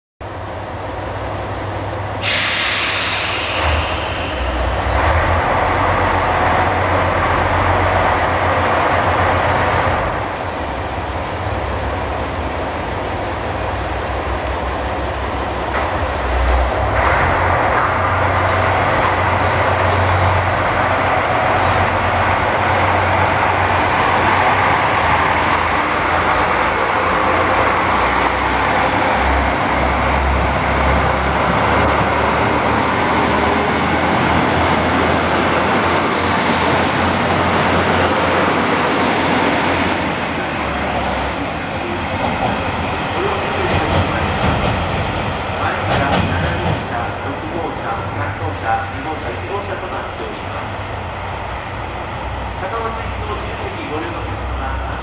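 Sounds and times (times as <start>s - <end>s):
diesel railcar engines revving: 0.2s - 55.0s
air brakes hissing: 2.2s - 4.8s.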